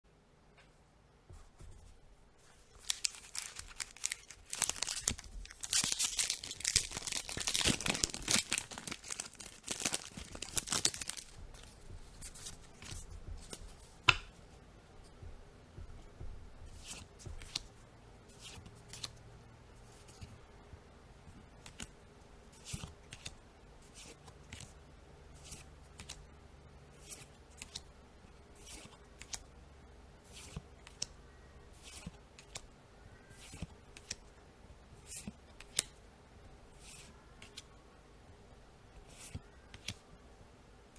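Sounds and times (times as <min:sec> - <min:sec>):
foil wrapper tearing and crinkling: 0:02.8 - 0:11.4.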